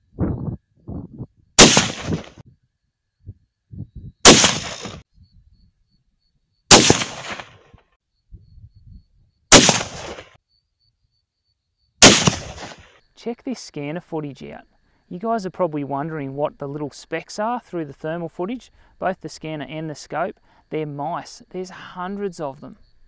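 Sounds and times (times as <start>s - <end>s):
rifle shots: 1.6s - 2.4s, 4.2s - 5.0s, 6.7s - 7.6s, 9.5s - 10.4s, 12.0s - 12.8s.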